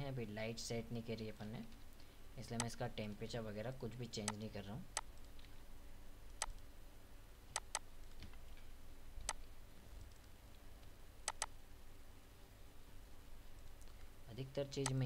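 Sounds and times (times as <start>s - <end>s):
computer mouse button clicking: 7.6s - 7.8s, 11.3s - 11.5s.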